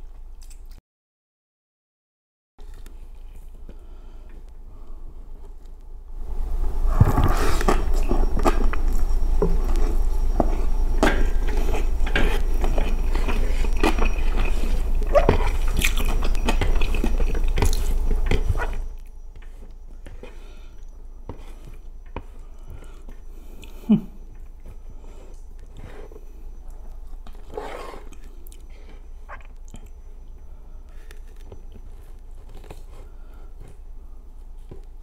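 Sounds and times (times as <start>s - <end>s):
person chewing and lip-smacking: 0.2s - 0.8s, 7.6s - 21.0s, 21.6s - 33.8s.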